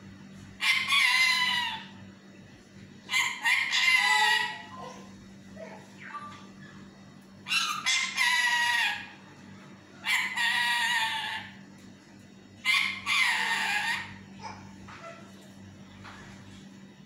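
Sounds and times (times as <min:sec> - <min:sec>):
parakeet calls: 0:00.6 - 0:02.0, 0:03.1 - 0:04.8, 0:07.4 - 0:09.2, 0:10.0 - 0:11.6, 0:12.6 - 0:15.3.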